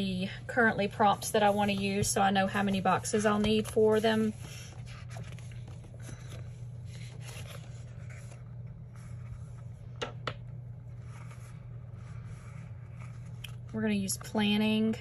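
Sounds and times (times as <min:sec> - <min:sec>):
steady low hum: 0:00.0 - 0:15.0
paper pages rustling: 0:01.0 - 0:10.0.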